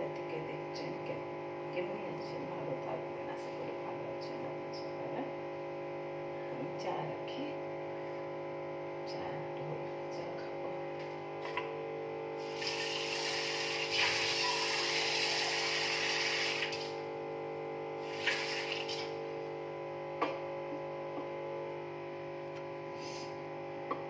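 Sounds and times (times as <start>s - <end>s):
tap water running into sink: 12.5s - 17.0s, 18.0s - 19.1s.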